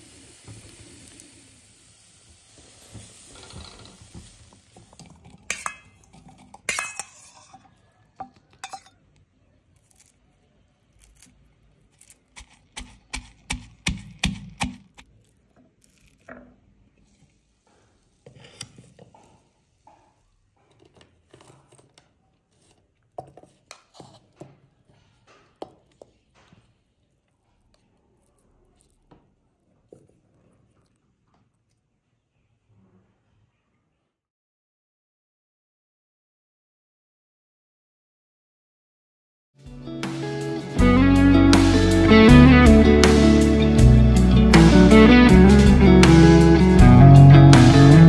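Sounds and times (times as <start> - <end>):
spoon clinking a glass bowl: 5.5 - 9.0.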